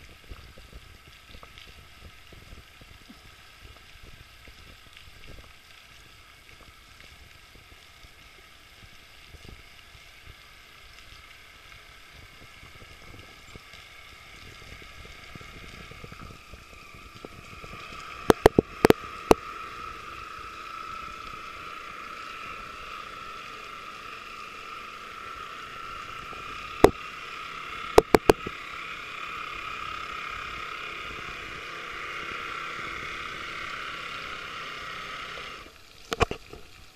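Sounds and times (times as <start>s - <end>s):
model boat motor whining: 10.4s - 36.4s
sharp clicks: 17.1s - 19.4s, 27.9s - 28.5s.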